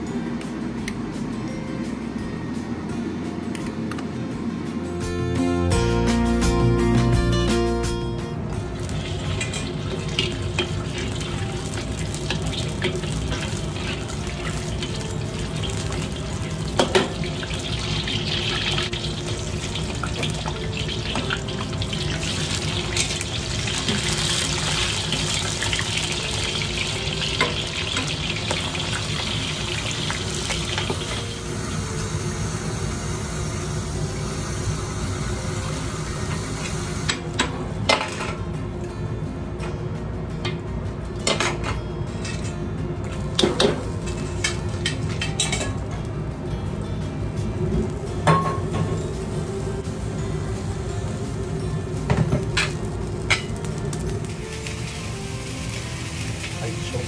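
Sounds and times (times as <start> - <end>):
food sizzling in hot oil: 8.6 - 37.4, 43.1 - 46.3, 47.1 - 57.0.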